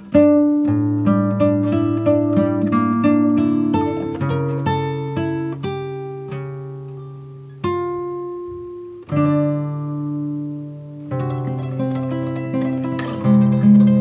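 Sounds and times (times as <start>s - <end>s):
acoustic guitar plucking slowly: 0.0s - 14.0s.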